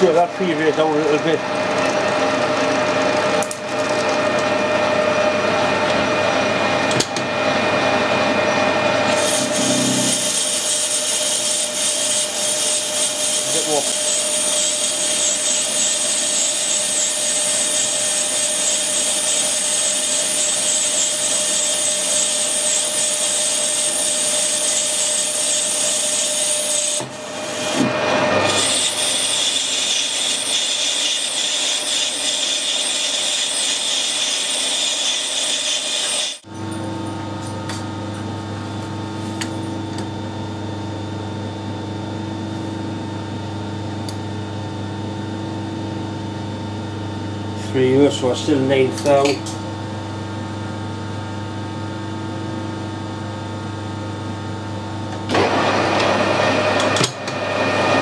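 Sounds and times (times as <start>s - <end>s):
lathe tool cutting metal: 8.4s - 36.5s.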